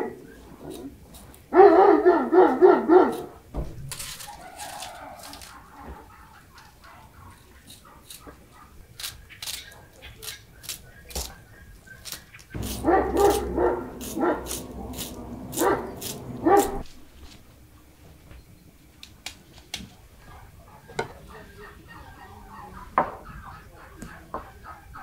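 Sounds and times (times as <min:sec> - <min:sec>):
dog barking: 0:01.5 - 0:03.4, 0:04.3 - 0:08.8, 0:09.7 - 0:10.0, 0:12.6 - 0:16.8, 0:20.2 - 0:21.0
low rumble: 0:12.6 - 0:17.1.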